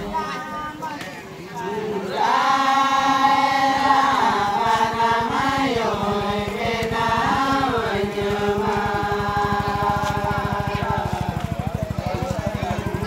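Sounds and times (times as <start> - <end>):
person chanting a slow song: 0.0 - 13.0.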